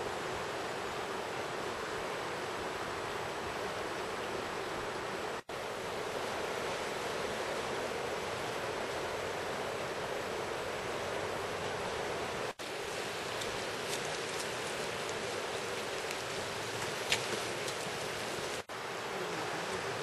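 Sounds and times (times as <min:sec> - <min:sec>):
river flowing: 0:00.0 - 0:20.0.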